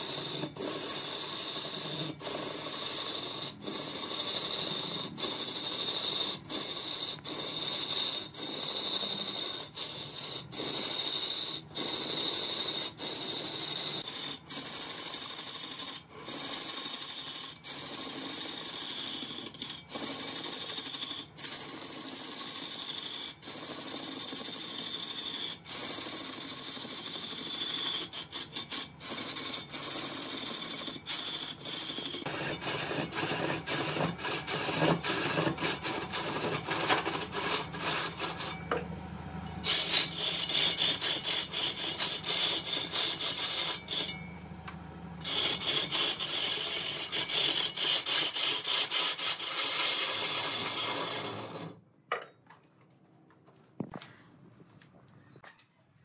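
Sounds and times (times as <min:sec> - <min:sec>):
wood lathe cutting tool hiss: 0:32.3 - 0:38.7, 0:39.5 - 0:44.2.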